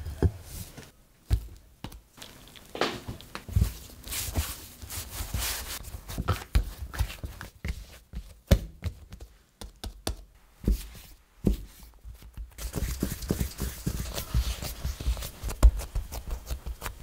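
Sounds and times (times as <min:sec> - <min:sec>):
dough thumping on a mat: 0:06.1 - 0:17.0.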